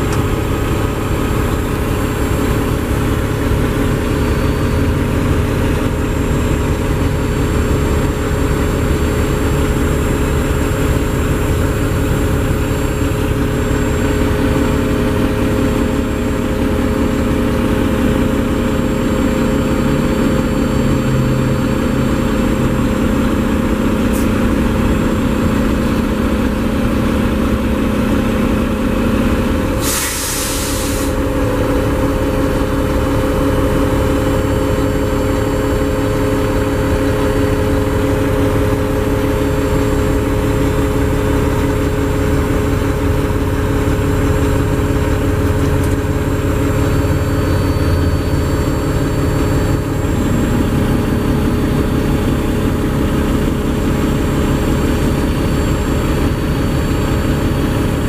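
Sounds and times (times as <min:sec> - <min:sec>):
diesel truck engine idling: 0:00.0 - 0:58.0
air hiss: 0:29.8 - 0:31.2.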